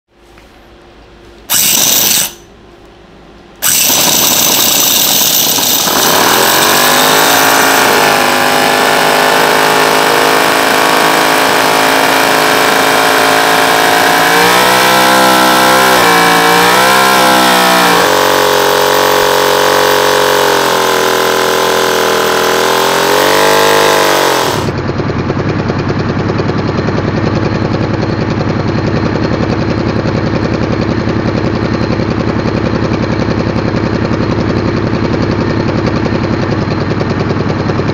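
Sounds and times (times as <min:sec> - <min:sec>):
model engine running buzzy: 0:01.5 - 0:02.4, 0:03.6 - 0:24.8.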